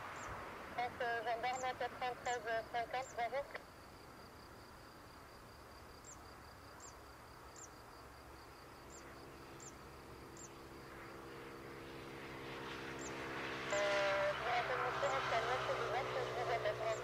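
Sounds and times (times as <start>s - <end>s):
faint insect buzz: 0.1s - 17.0s
jet engines humming: 8.9s - 17.0s.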